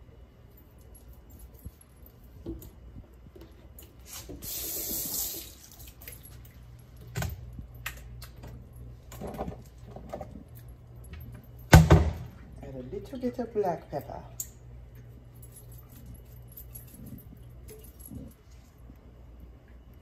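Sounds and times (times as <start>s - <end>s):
steady low hum: 0.0s - 20.0s
seasoning sprinkling hiss: 4.0s - 5.6s.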